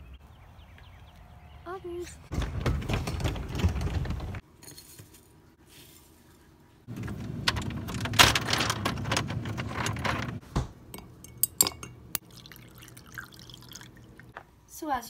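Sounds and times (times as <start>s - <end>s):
mug and dishes clinking: 10.9s - 13.8s.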